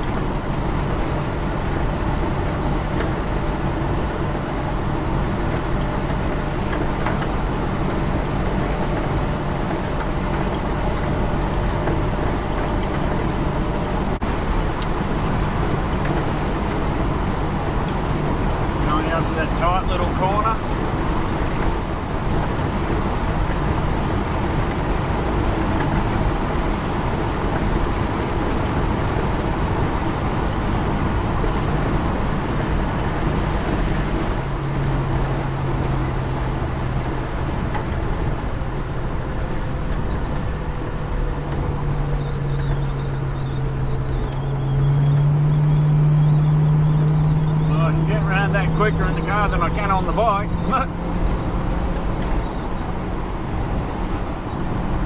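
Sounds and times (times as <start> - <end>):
car engine hum: 0.0 - 55.0.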